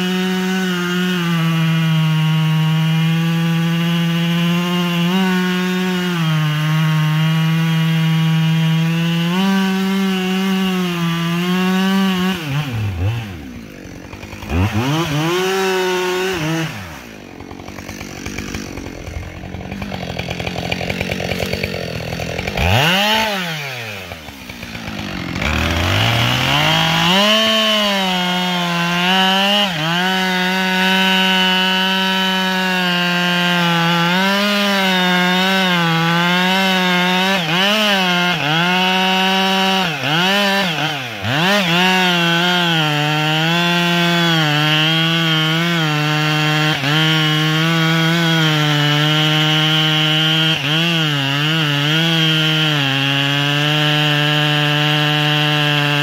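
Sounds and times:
chainsaw cutting wood: 0:00.0 - 0:56.0.

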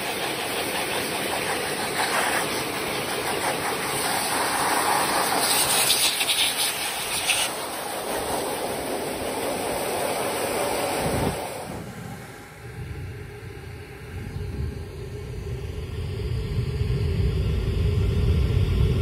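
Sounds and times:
hair dryer blowing air: 0:00.0 - 0:13.6.

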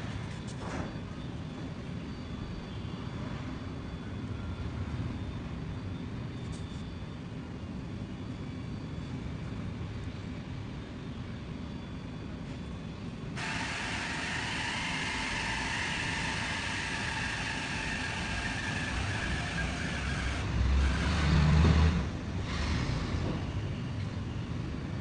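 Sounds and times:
steady hum of vehicles: 0:00.0 - 0:25.0
vehicle passing with low rumble: 0:20.2 - 0:23.6.

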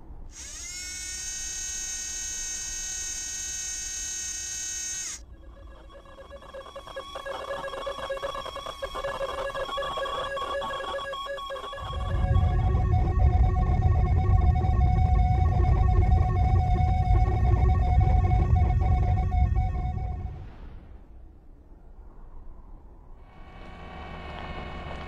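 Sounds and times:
whirring clicking mechanical texture: 0:00.3 - 0:12.7
high electronic tone: 0:00.4 - 0:20.4
deep rumble: 0:11.8 - 0:25.0.

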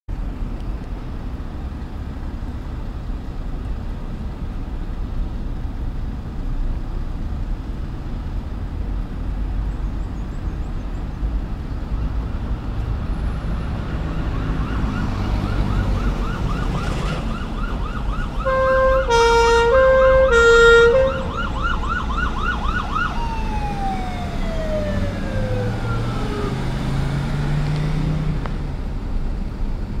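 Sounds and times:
road traffic: 0:00.1 - 0:30.0
vehicle engine: 0:00.1 - 0:30.0
ambulance siren yelping: 0:13.7 - 0:26.7
two-tone air horn: 0:18.4 - 0:21.3.

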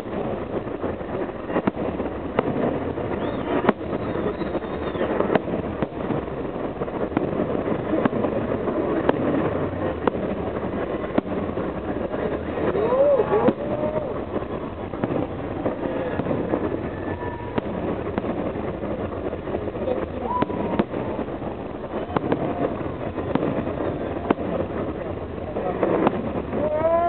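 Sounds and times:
fireworks bangs: 0:00.0 - 0:27.0.

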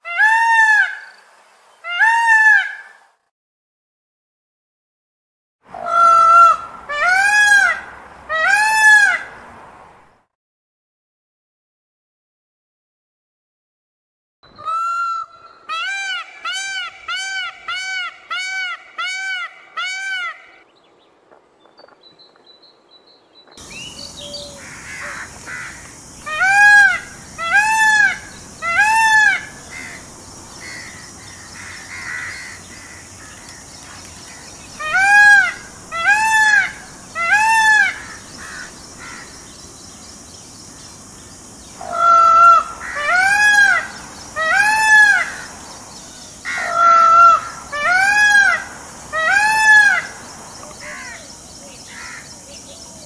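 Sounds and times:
peacock calling: 0:00.0 - 0:01.2, 0:01.8 - 0:03.0, 0:05.7 - 0:09.4, 0:14.5 - 0:20.7, 0:23.6 - 0:53.0.

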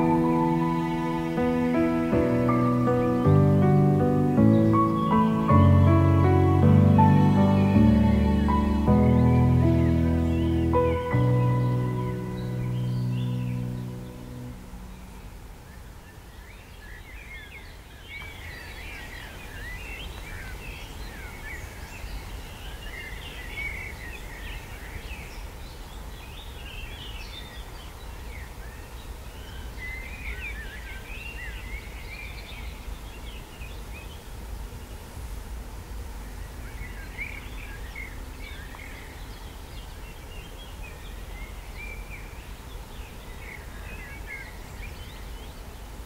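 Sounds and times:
small birds chirping: 0:00.0 - 0:35.2.

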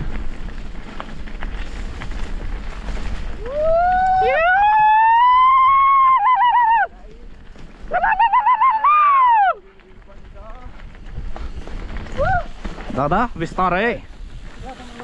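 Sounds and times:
wind and tyre noise: 0:00.0 - 0:15.0.

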